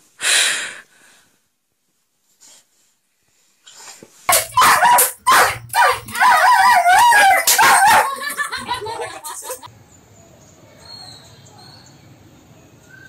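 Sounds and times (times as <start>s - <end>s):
dog barking sharply: 4.3s - 8.4s
dog yelping and whining: 4.3s - 9.7s.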